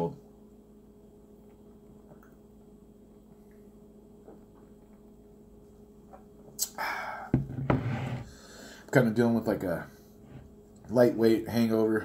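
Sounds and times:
faint steady hum: 0.0s - 12.0s
man exhaling and saying aah: 6.6s - 7.3s.

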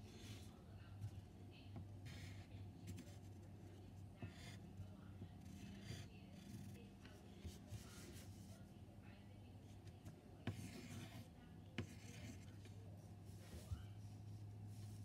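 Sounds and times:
pencil scratching on paper: 5.4s - 8.6s, 10.5s - 11.2s, 11.8s - 12.8s.

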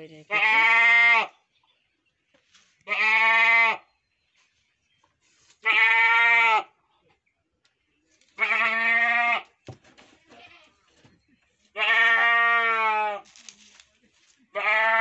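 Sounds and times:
goat bleating: 0.3s - 1.3s, 2.8s - 3.8s, 5.6s - 6.8s, 8.4s - 9.5s, 10.2s - 10.9s, 11.7s - 13.2s, 14.5s - 15.0s.

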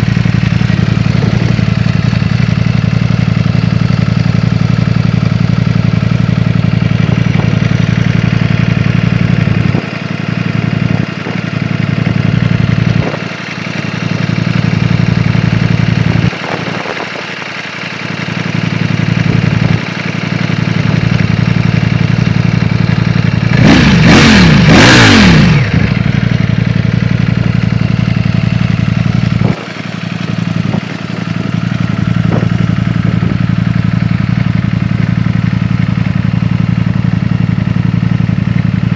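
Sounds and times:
motorcycle engine idling: 0.0s - 38.9s
engine revving: 23.4s - 26.2s.

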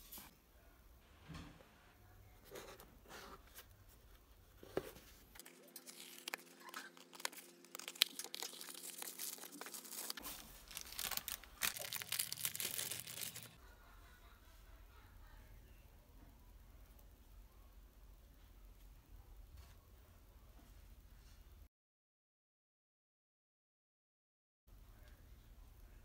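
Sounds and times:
plastic packaging crinkling: 5.4s - 13.6s.

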